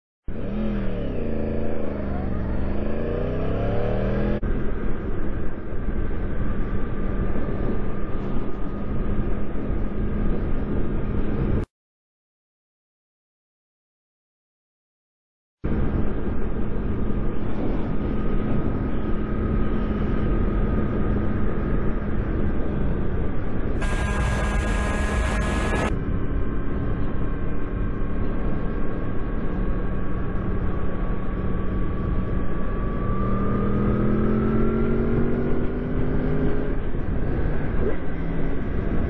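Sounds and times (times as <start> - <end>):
motorcycle engine running: 23.8 - 33.0.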